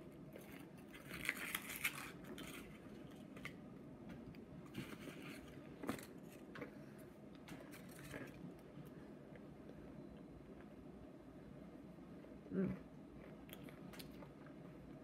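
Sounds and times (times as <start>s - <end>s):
paper wrapper crumpling: 0.9s - 2.9s.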